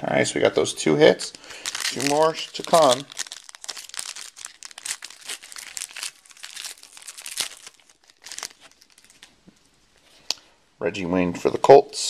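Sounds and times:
foil wrapper tearing and crinkling: 1.5 - 9.4.

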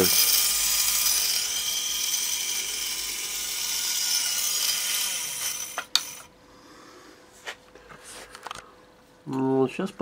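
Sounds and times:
small electric drill whining: 0.0 - 6.3.

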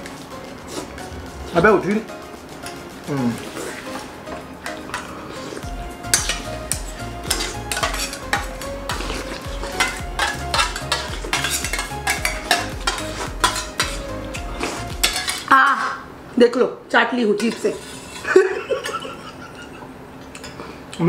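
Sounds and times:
spoons clinking on steel plates: 4.6 - 16.0, 17.2 - 19.6, 20.2 - 20.6.

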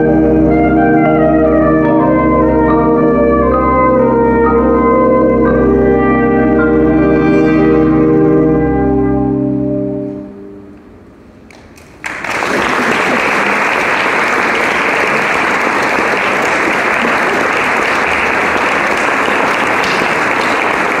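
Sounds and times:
brass chord: 0.0 - 11.2
audience applause: 11.5 - 21.0.

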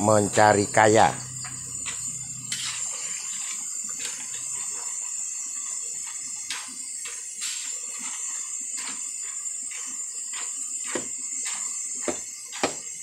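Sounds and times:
frying in hot oil hiss: 0.0 - 13.0
metal spatula scraping: 1.8 - 5.0.

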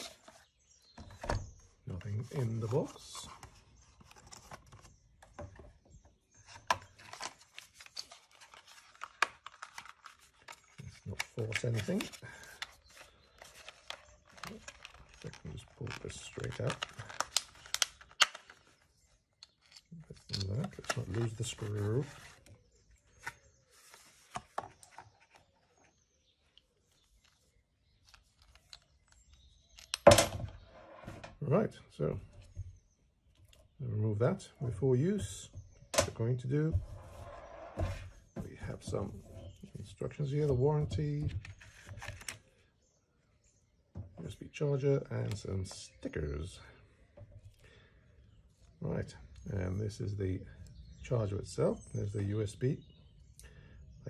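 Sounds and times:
cardboard and cable handling: 0.0 - 5.8, 6.4 - 30.7, 37.8 - 42.6.

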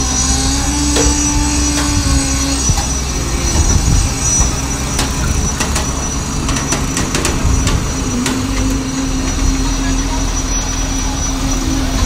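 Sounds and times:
truck engine humming: 0.0 - 12.0
short sharp knocks: 1.0 - 1.9.

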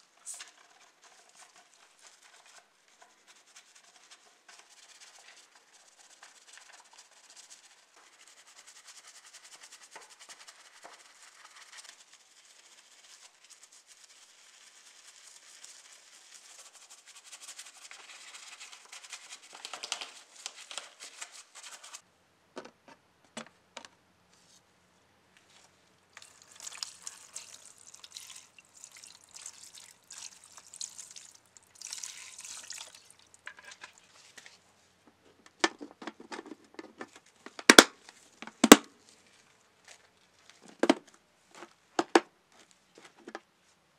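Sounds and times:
brush scrubbing wet surface: 0.0 - 22.0.

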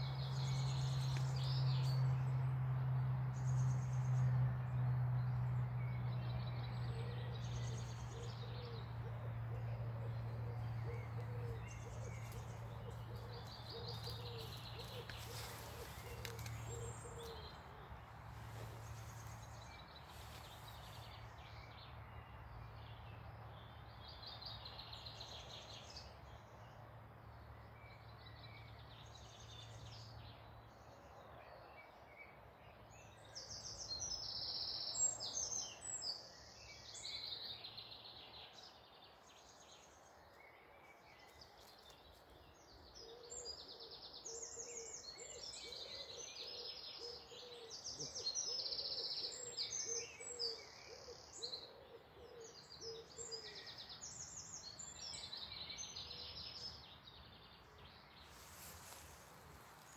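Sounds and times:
songbirds singing: 0.0 - 59.9.

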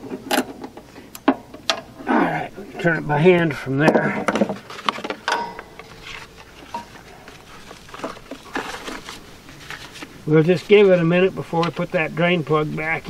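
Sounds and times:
hand tools clicking and knocking: 3.8 - 5.9.

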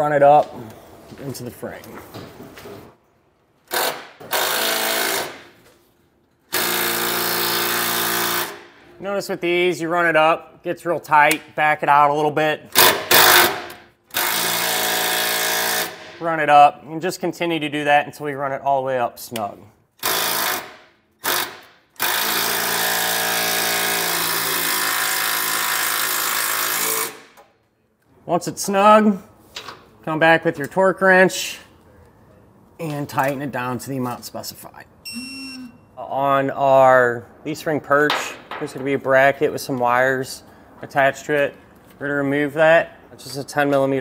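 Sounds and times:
power driver driving screw into steel: 3.7 - 5.5, 12.8 - 16.1, 20.0 - 27.4.

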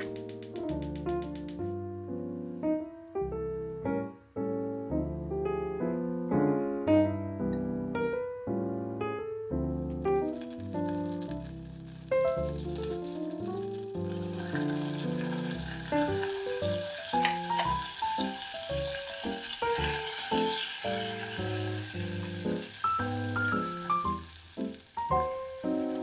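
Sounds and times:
background piano music: 0.0 - 26.0
butter sizzling in a saucepan: 9.9 - 26.0.

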